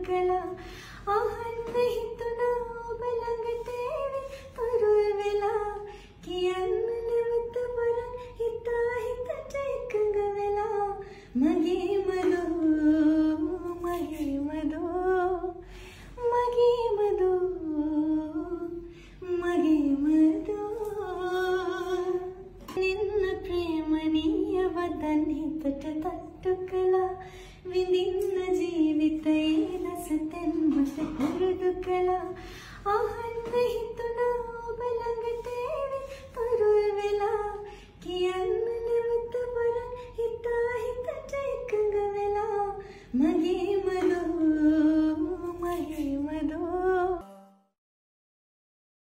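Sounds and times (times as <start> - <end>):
woman singing slow melody: 0.0 - 47.4.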